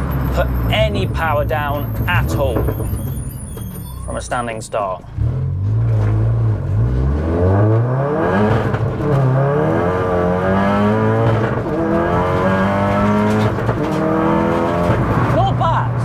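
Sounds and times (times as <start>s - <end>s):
car engine accelerating hard: 5.1s - 15.5s.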